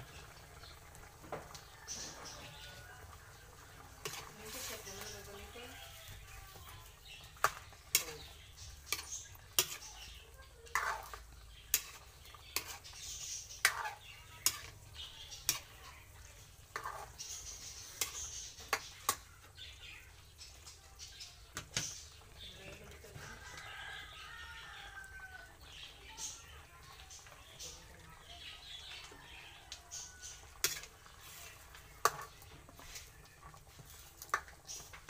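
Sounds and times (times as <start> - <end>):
metal ladle scraping a wok: 4.0 - 5.5, 7.4 - 10.0, 10.7 - 19.2, 30.6 - 33.1.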